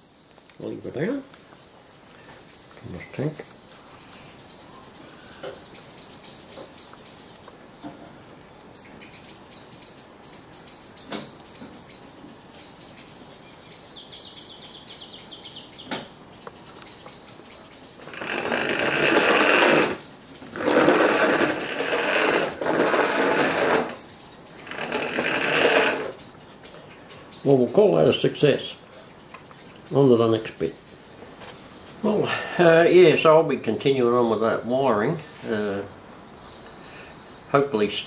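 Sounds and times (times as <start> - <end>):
toy train motor whirring: 18.1 - 24.0, 24.6 - 26.2.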